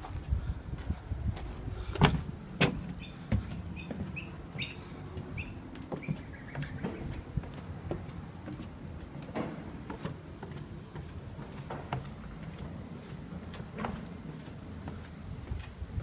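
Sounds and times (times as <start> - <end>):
footsteps on wooden boards: 0.0 - 16.0.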